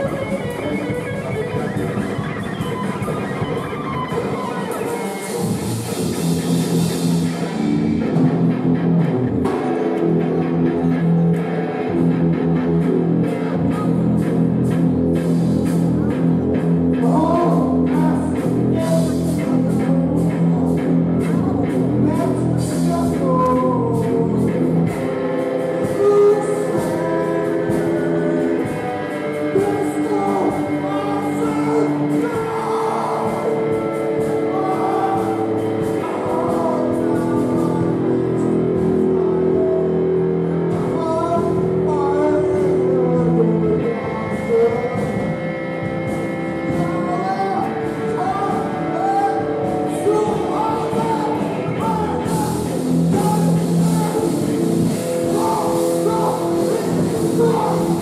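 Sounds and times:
man singing into a microphone: 16.9 - 45.4, 46.6 - 58.0.

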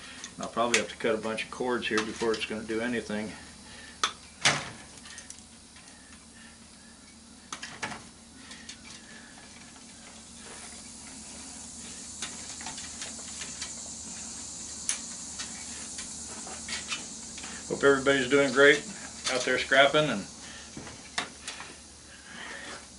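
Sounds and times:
steady high hiss: 0.0 - 22.9
wire cutters clicking and snipping: 1.9 - 2.5.

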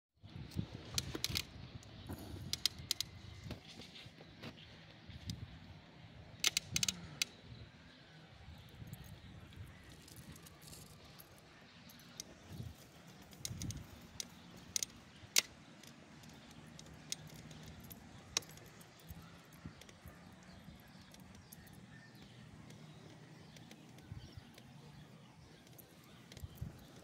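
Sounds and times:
dog collar tags jingling: 8.9 - 15.0, 16.1 - 27.0.

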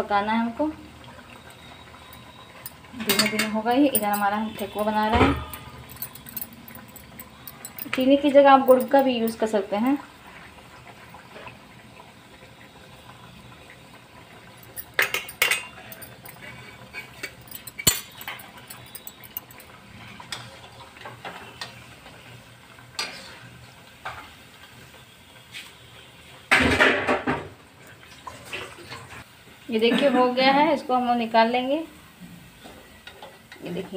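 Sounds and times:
food sizzling in hot oil: 0.0 - 5.9, 6.5 - 26.8
steel spoon clinking on pan: 2.1 - 9.4, 14.6 - 19.7
spoon scraping pan: 14.8 - 19.4.

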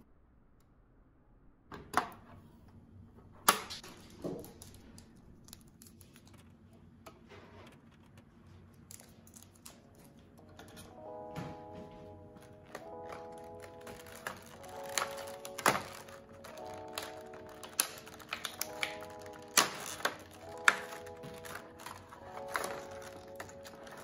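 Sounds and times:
plastic pieces clicking and knocking: 3.5 - 6.5, 12.7 - 24.0
soft background music: 8.5 - 24.0.

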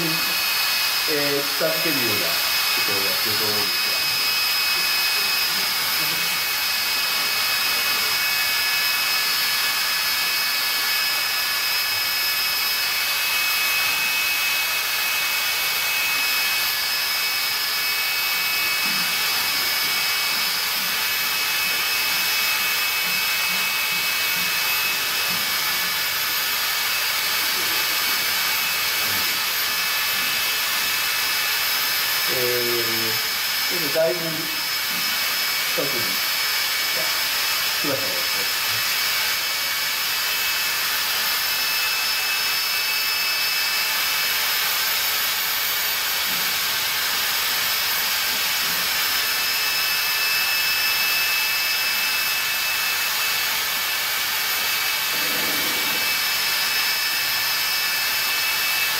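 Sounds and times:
electric machinery whine: 0.0 - 58.9
even hiss: 55.1 - 56.1.

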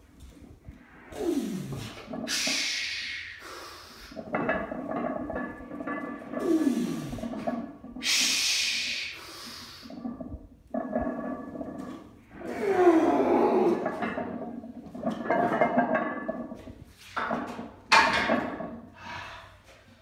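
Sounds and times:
person groaning yell: 12.5 - 13.8.

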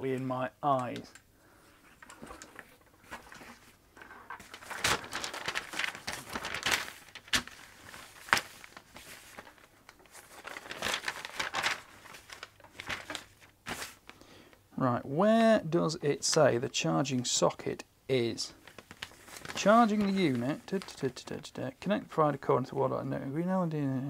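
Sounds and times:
paper pages rustling: 1.6 - 14.2, 18.5 - 21.5
sharp paper crackles: 1.9 - 14.2, 18.5 - 21.4.

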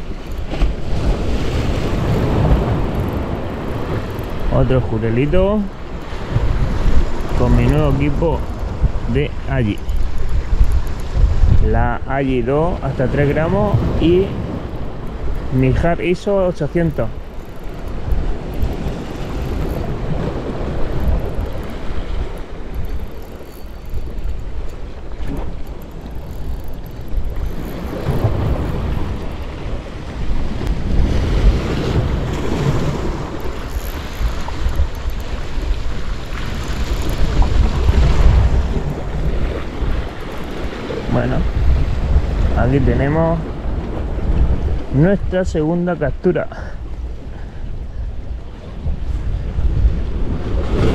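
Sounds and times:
wind buffeting microphone: 0.0 - 45.7, 46.8 - 50.9
sea surf washing against concrete: 0.0 - 46.6.

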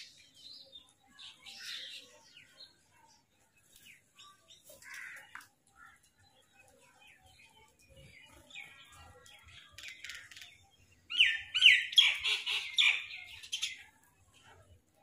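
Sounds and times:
crows cawing: 4.8 - 5.5.

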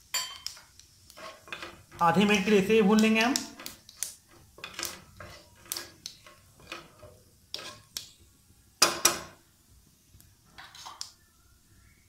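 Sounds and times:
wooden spatula scraping frying pan: 1.1 - 2.4, 3.6 - 8.0.

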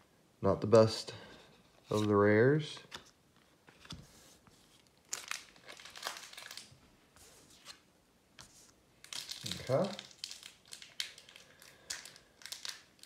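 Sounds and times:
foil wrapper crinkling: 4.9 - 6.8, 9.0 - 13.0
wrapper tearing: 4.9 - 6.8, 9.0 - 13.0.

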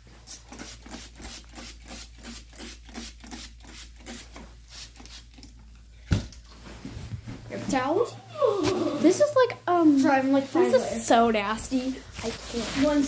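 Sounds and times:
paper towel scrubbing: 8.7 - 13.0.

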